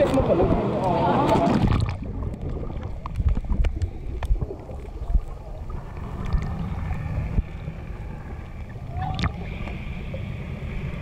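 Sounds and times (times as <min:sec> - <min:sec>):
underwater low rumble: 0:00.0 - 0:11.0
clicks and knocks of water: 0:01.2 - 0:05.3, 0:09.1 - 0:09.4.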